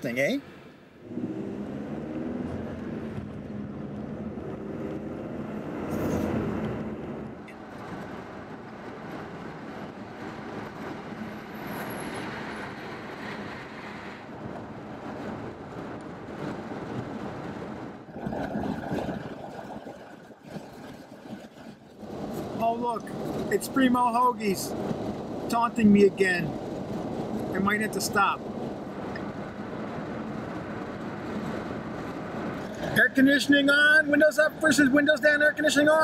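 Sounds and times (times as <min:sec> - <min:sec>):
road and wind noise in car: 0:00.0 - 0:36.0.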